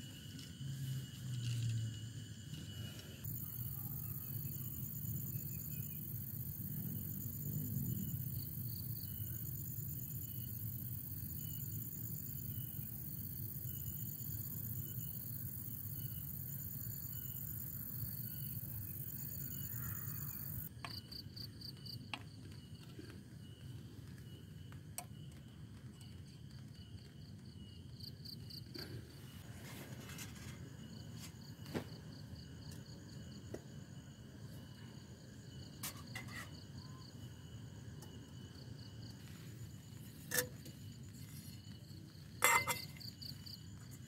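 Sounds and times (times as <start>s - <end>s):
insects chirping in trills: 0.0s - 44.0s.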